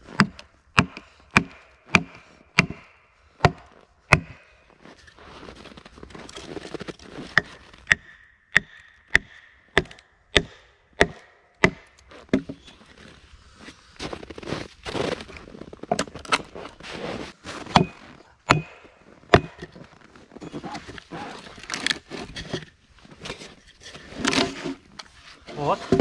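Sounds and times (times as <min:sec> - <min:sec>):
wedges hammered into log: 0:00.2 - 0:04.4, 0:07.4 - 0:12.6, 0:17.7 - 0:19.8.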